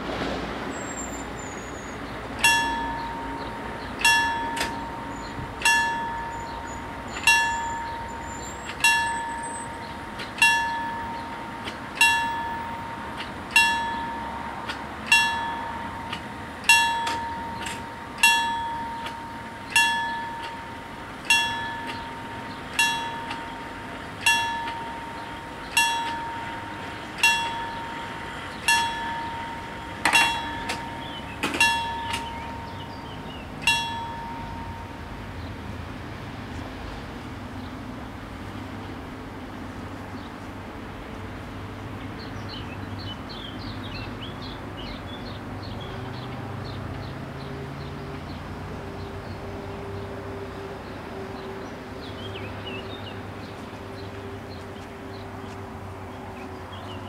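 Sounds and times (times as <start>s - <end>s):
level crossing warning bell: 0.9s - 37.2s.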